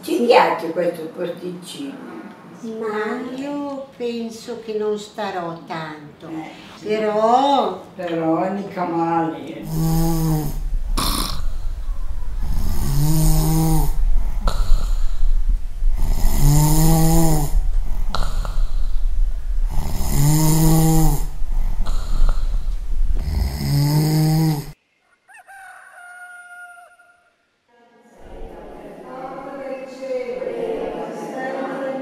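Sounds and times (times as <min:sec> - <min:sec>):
woman snoring: 0:09.6 - 0:11.8, 0:12.4 - 0:15.2, 0:15.9 - 0:19.0, 0:19.7 - 0:24.8
hissing breaths: 0:09.6 - 0:24.8.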